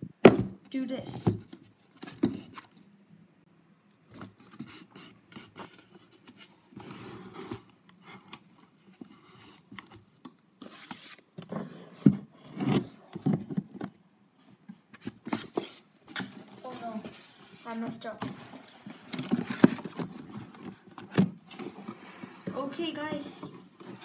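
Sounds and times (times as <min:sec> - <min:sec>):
knocks on cardboard box: 0:00.2 - 0:00.6
cardboard box rubbing and scraping: 0:06.8 - 0:07.6.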